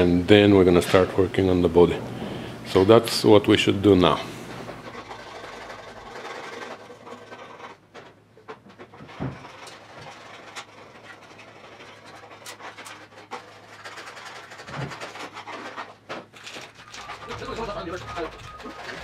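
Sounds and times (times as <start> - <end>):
small clicks and rustles: 4.7 - 19.0.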